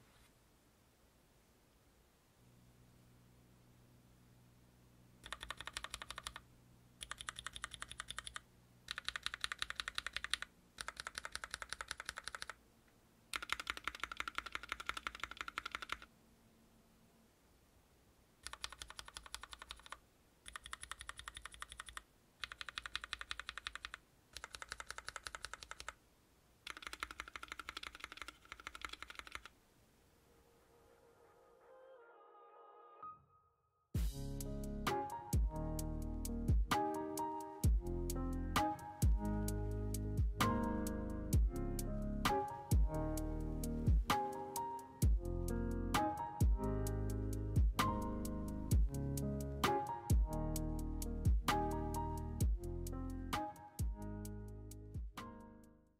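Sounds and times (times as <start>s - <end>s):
mechanical keyboard typing: 5.2s - 6.4s, 7.0s - 12.6s, 13.3s - 16.1s, 18.4s - 26.0s, 26.6s - 29.5s.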